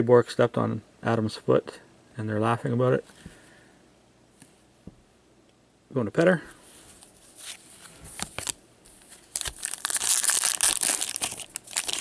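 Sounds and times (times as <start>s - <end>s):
shiny wrapper crinkling torn: 8.2s - 12.0s.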